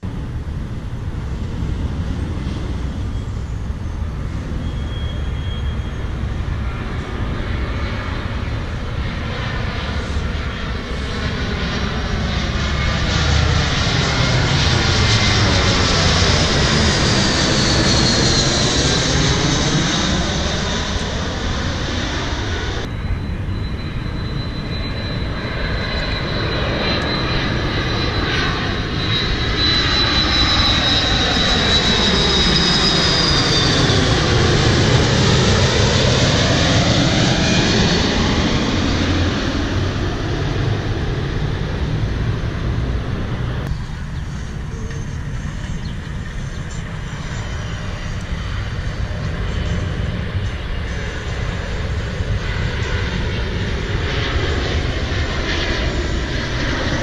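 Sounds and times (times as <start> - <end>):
jet airliner passing overhead: 0.0 - 57.0.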